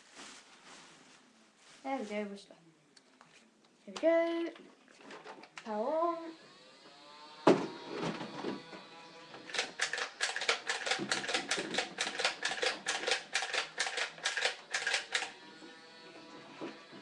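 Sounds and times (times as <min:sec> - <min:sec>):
toy blaster firing clacks: 0:09.4 - 0:15.4.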